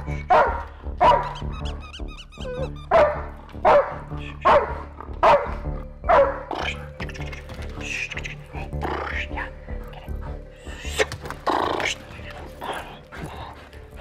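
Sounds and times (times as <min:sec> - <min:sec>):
dog barking: 0:00.0 - 0:01.7, 0:02.9 - 0:07.2
dog whining: 0:01.1 - 0:03.3.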